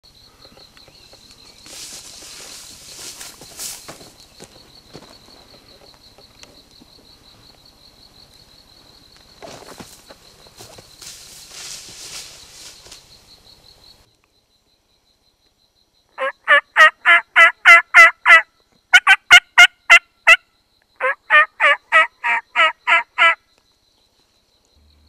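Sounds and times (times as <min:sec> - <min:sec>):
turkey call yelps: 0:16.2 - 0:18.4, 0:19.0 - 0:20.4, 0:21.0 - 0:23.4.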